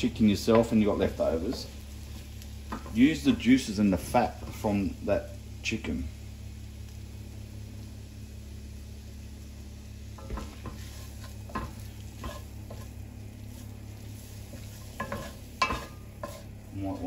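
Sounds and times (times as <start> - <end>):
chicken and onion sizzling: 0.0 - 17.0
steady low hum: 0.0 - 17.0
wooden spatula scraping pan: 10.2 - 17.0.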